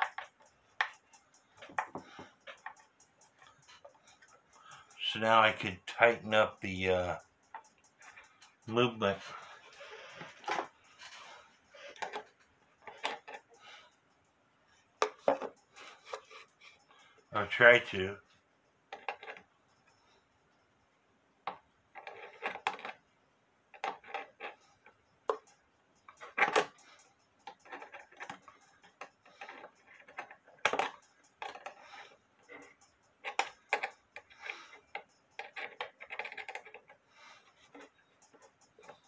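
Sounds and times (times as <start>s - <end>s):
hand tools clicking and scraping: 0.0s - 14.0s, 15.0s - 18.1s, 18.9s - 19.5s, 22.0s - 23.0s, 23.7s - 39.0s.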